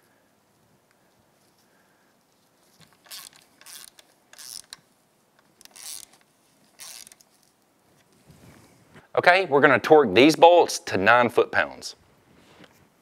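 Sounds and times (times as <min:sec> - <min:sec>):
socket ratchet clicking: 0:03.0 - 0:04.8, 0:05.4 - 0:06.2, 0:06.8 - 0:07.2.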